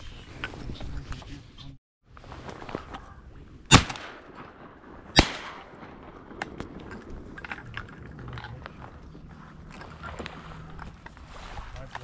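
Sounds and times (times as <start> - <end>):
rustles: 0.0 - 4.8, 6.1 - 12.0
shotgun shots with echo: 3.7 - 6.8.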